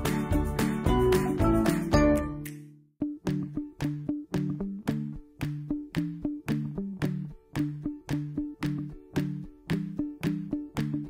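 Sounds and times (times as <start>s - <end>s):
strummed guitar: 3.0s - 11.0s.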